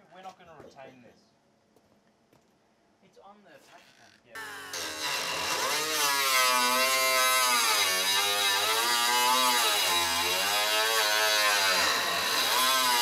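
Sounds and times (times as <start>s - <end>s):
cut-off wheel cutting metal: 4.4s - 13.0s.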